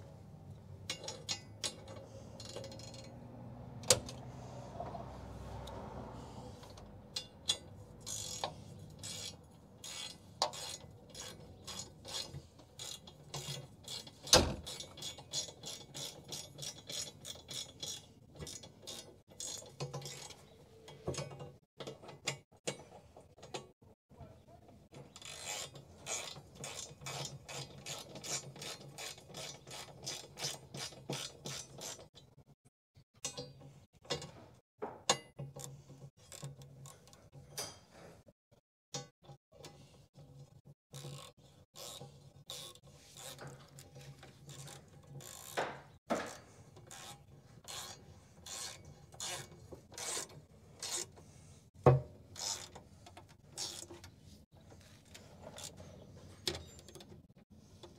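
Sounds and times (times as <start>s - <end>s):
ratchet wrench clicking: 0.9s - 3.2s, 7.1s - 20.4s, 25.1s - 32.0s, 40.9s - 45.6s, 46.3s - 51.1s, 52.4s - 52.8s, 53.6s - 53.9s.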